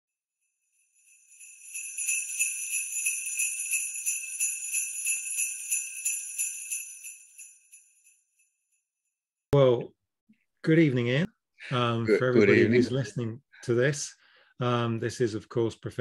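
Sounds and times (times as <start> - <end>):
sleigh bells jingling: 0.6 - 8.4.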